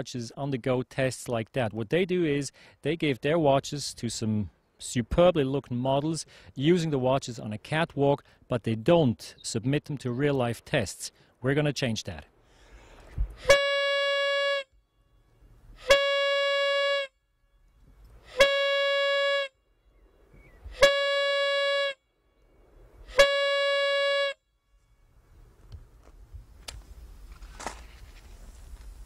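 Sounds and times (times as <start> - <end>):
warning horn blasts: 13.4 - 17.2, 18.2 - 19.6, 20.7 - 22.1, 23.0 - 24.5.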